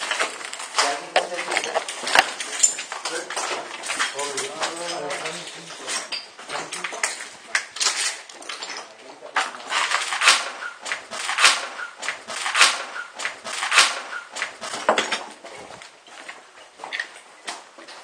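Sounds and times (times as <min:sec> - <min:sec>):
slow footsteps: 0:00.0 - 0:04.5.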